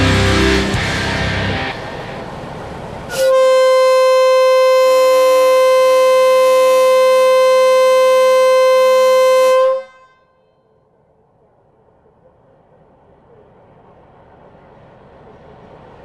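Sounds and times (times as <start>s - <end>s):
locomotive air horn blast: 3.1s - 10.5s.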